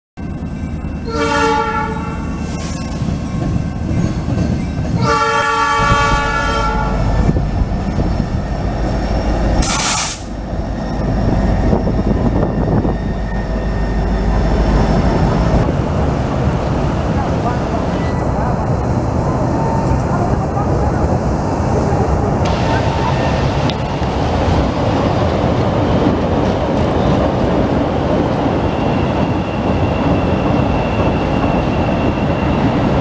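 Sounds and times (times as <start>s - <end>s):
train engine rumble: 0.2s - 33.0s
locomotive horn blasts: 1.0s - 2.2s, 5.0s - 7.1s
loud hiss: 9.6s - 10.4s.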